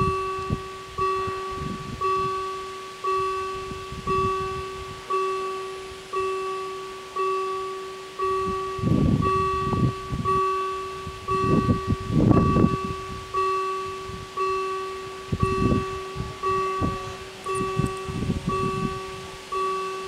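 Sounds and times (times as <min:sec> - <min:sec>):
level crossing bell ringing: 0:00.0 - 0:20.0
low rumbling noise: 0:07.8 - 0:19.8.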